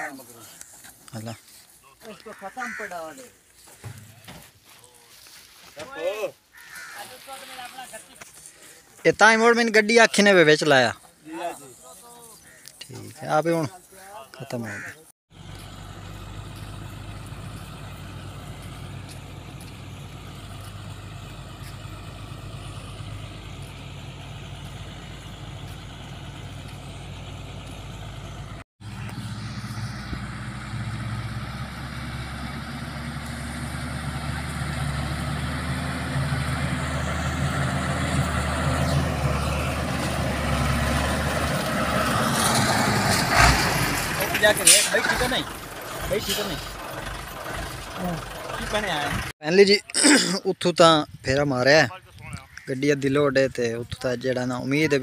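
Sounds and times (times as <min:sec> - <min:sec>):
diesel truck engine driving: 0:14.5 - 0:50.4.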